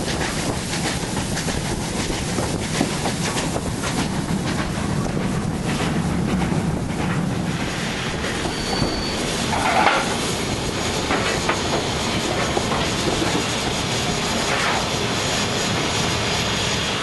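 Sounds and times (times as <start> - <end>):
wheels clicking over rail joints: 0.0 - 13.7
steam train rumbling: 0.0 - 17.0
high squeal: 8.1 - 17.0.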